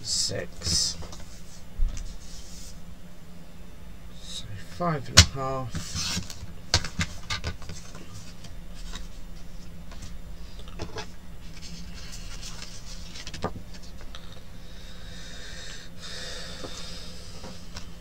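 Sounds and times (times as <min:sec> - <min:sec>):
low steady hum: 0:00.0 - 0:18.0
paper rustling: 0:05.8 - 0:10.2, 0:11.0 - 0:14.1.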